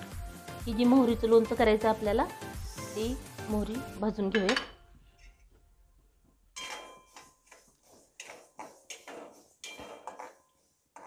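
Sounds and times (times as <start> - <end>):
metal spoon scraping a pan: 4.4 - 5.5, 6.6 - 11.0.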